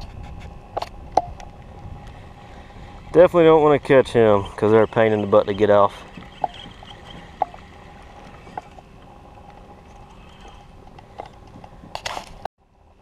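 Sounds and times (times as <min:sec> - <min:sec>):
water lapping against kayak hull: 0:04.2 - 0:11.2.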